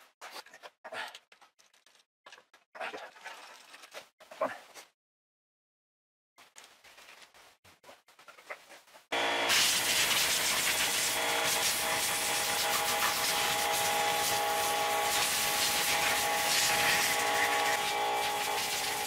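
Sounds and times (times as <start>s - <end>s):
steady whine: 9.2s - 19.0s
compressed air hissing: 9.5s - 19.0s.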